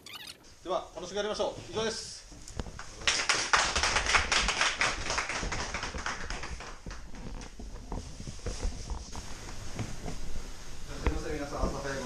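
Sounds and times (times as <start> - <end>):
small group clapping: 2.7 - 7.6.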